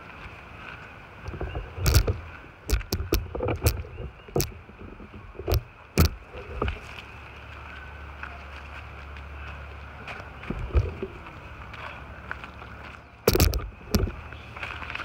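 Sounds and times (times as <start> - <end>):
footsteps on dry leaves: 6.2 - 15.0.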